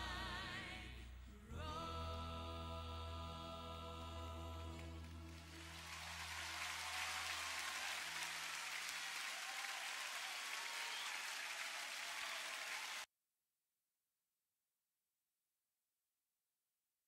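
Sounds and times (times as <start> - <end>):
crowd applauding: 4.7 - 13.1.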